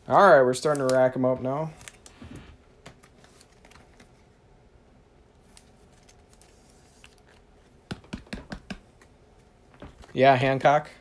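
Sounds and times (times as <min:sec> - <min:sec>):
trading cards being flipped: 0:00.6 - 0:01.0.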